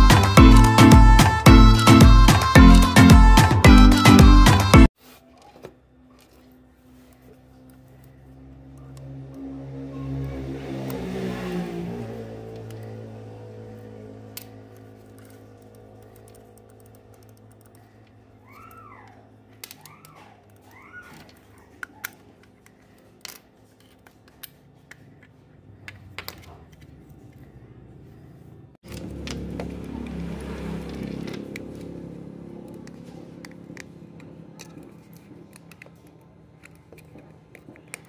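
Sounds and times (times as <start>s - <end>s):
background music: 0.0s - 4.9s.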